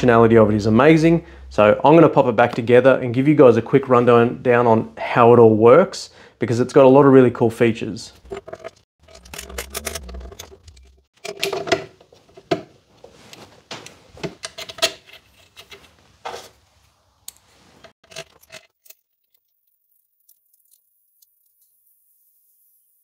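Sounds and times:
metal grinder parts clicking and clinking: 8.2s - 12.5s, 18.0s - 20.8s.

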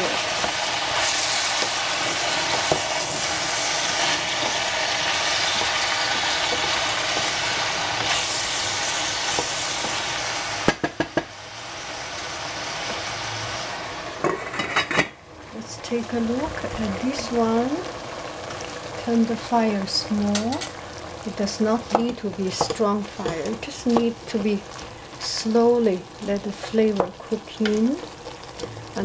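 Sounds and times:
food sizzling in a saucepan: 0.0s - 14.6s, 15.4s - 29.0s
wooden spatula stirring: 0.4s - 10.0s.

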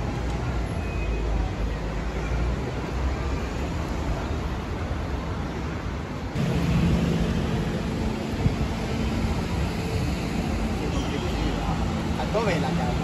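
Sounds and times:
traffic running by: 0.0s - 13.0s
low steady engine hum: 6.2s - 13.0s.

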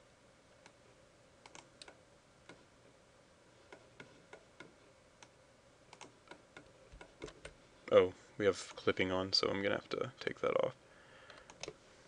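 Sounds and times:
faint hum: 0.0s - 12.0s
keyboard and mouse clicking: 1.4s - 2.6s, 5.9s - 7.6s, 11.3s - 11.8s.

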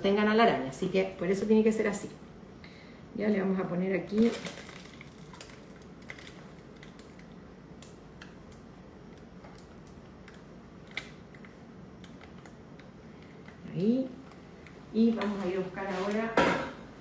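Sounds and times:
low background hum: 0.0s - 17.0s.

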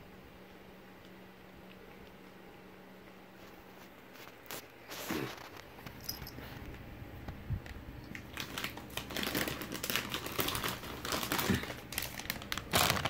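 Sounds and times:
chip bag crinkling: 8.1s - 13.0s.

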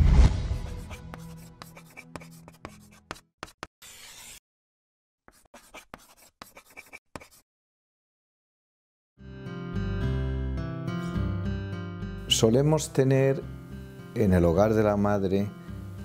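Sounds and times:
marker scratching on paper: 0.6s - 4.4s, 5.3s - 7.4s.

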